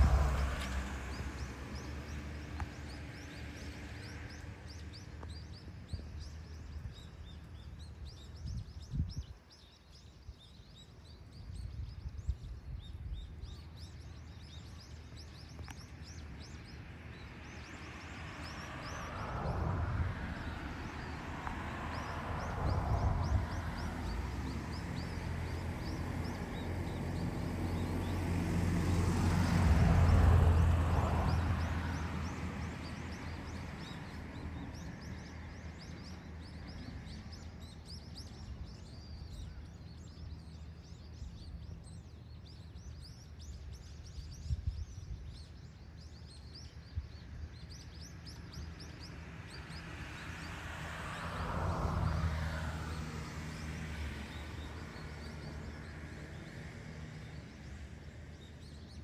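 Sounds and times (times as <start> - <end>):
vehicle engine passing by: 0.0 - 5.0, 16.0 - 37.5, 48.0 - 58.9.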